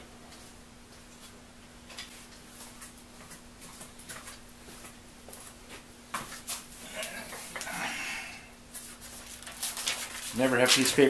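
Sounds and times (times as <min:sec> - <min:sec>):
steady hum: 0:00.0 - 0:11.0
faint clicks and rustles: 0:08.7 - 0:11.0.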